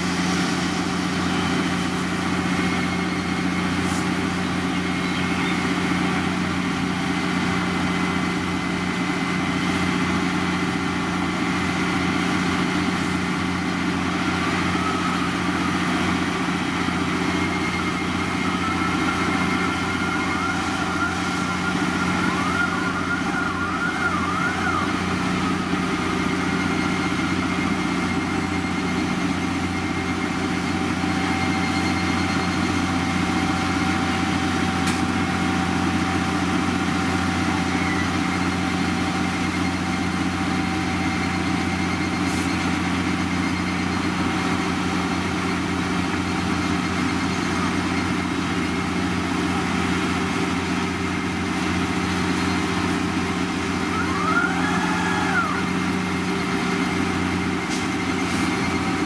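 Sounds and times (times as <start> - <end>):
diesel engine running: 0.0 - 59.0
faint warbling tone: 14.2 - 28.9.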